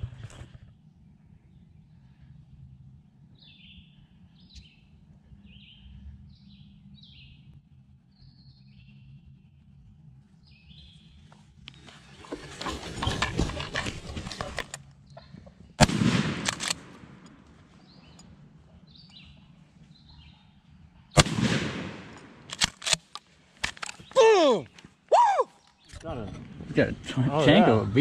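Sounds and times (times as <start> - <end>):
small songbirds chirping: 3.3 - 12.2, 17.6 - 21.2
rustling of grass and brush: 11.2 - 15.4
shotgun shot: 15.8 - 17.3, 21.2 - 23.0.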